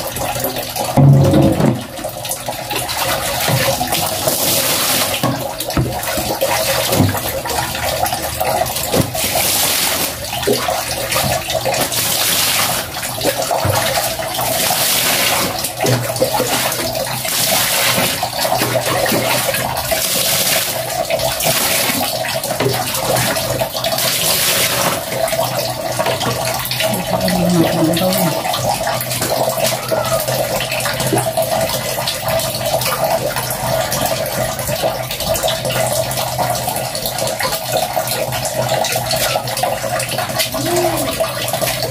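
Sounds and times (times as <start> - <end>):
water pouring into plastic basin: 0.0 - 41.9
water splashing: 0.0 - 41.9
running water hiss: 8.9 - 30.6.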